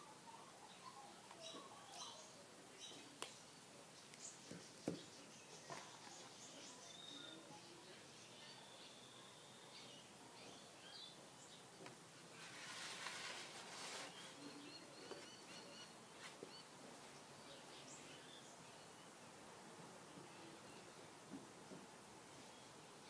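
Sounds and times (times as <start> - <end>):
faint high chirps: 4.0 - 11.6
paper rustling: 12.4 - 14.4.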